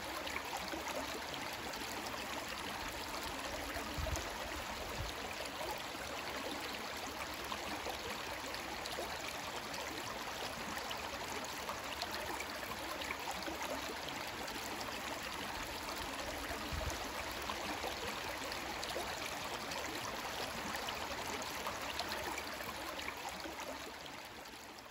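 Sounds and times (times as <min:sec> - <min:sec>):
creek water flowing: 0:00.0 - 0:24.9.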